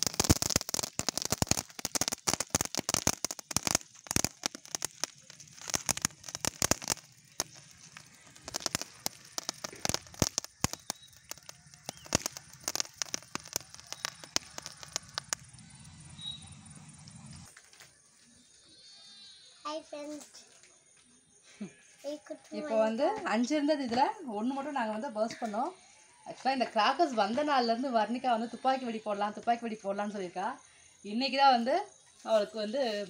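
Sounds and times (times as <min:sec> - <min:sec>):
firework crackling: 0:00.0 - 0:17.6
firework fountain hissing: 0:00.0 - 0:17.6.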